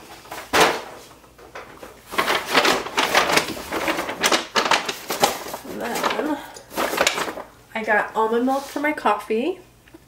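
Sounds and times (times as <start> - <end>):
shopping bag rustling and crinkling: 1.8 - 7.5.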